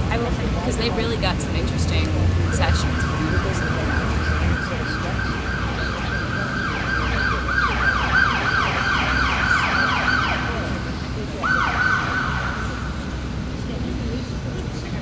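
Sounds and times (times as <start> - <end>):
low traffic rumble: 0.0 - 15.0
siren yelping: 2.4 - 10.8, 11.4 - 13.1.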